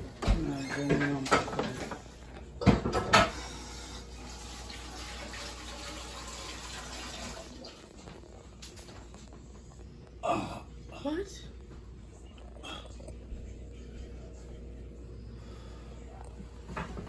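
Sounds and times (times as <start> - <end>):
water running from tap: 3.3 - 8.1.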